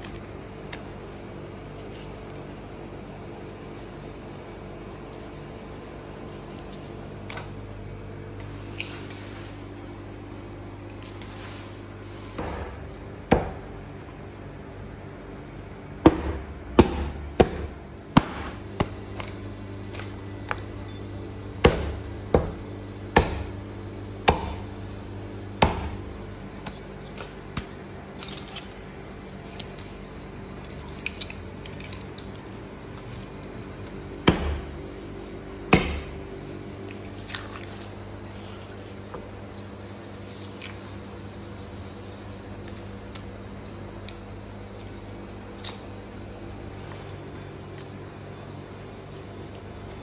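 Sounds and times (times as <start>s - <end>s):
low electrical hum: 0.0s - 50.0s
hatchet chopping on wooden block: 13.3s - 13.6s, 16.0s - 19.0s, 21.6s - 23.6s, 24.2s - 24.6s, 25.6s - 26.0s, 34.2s - 34.7s, 35.7s - 36.1s.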